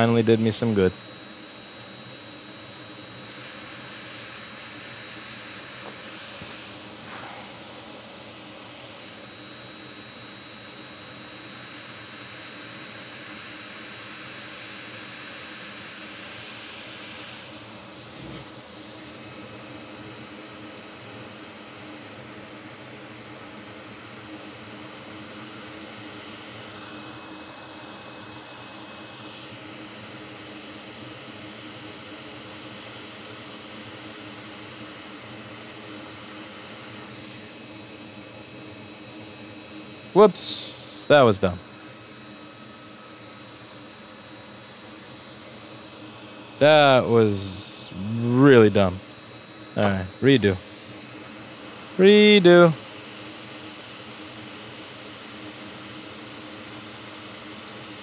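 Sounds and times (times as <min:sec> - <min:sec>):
rushing air hiss: 0:06.9 - 0:08.0.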